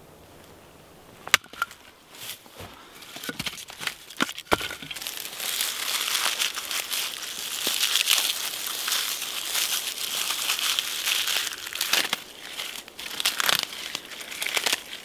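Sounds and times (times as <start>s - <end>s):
axe splitting a log: 1.2s - 1.8s, 3.2s - 5.1s
bark tearing and crinkling: 2.9s - 15.0s.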